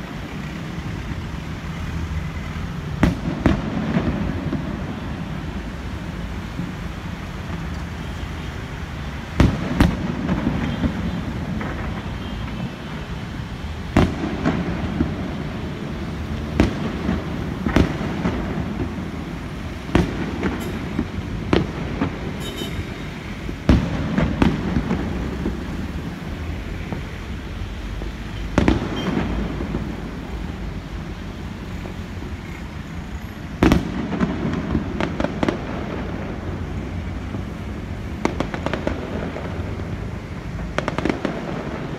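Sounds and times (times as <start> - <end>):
fireworks crackling: 0.0 - 41.9
fireworks shells booming: 2.9 - 5.8, 9.2 - 13.0, 13.8 - 25.9, 28.0 - 30.4, 33.5 - 41.9.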